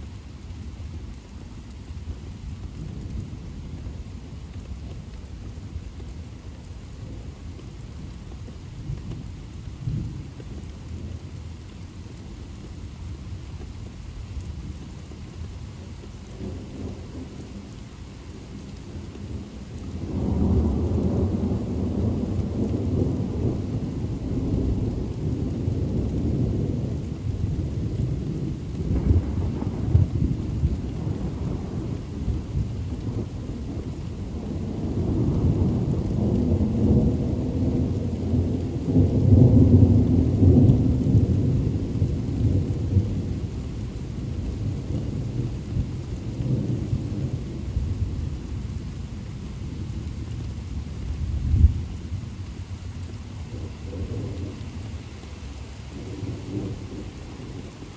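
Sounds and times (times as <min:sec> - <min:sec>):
steady rain: 0:00.0 - 0:57.9
thunder rumbling: 0:18.3 - 0:57.9.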